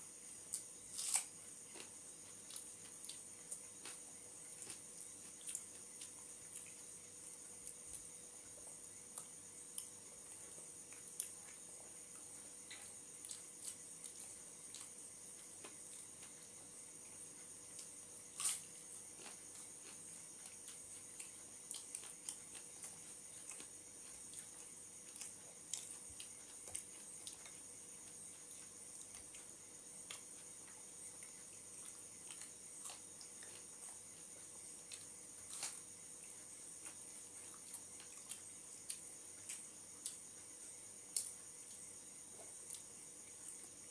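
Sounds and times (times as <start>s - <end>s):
wet chewing and smacking: 17.7s - 40.2s.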